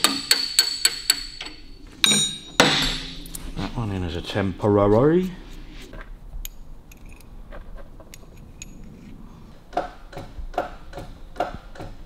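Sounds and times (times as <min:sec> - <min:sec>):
steel bolts and nuts clinking: 0:00.0 - 0:03.4, 0:06.4 - 0:07.4.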